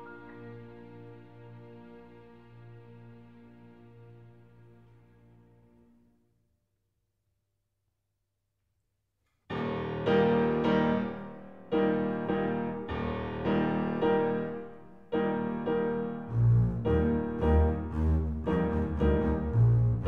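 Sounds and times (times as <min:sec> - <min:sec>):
piano chords: 0:00.0 - 0:04.7, 0:09.5 - 0:20.0
deep bass notes: 0:16.3 - 0:20.0.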